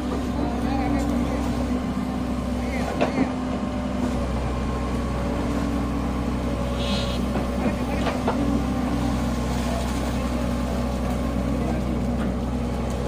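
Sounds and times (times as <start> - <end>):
excavator diesel engine running: 0.0 - 13.0
high hydraulic hiss: 6.6 - 7.3.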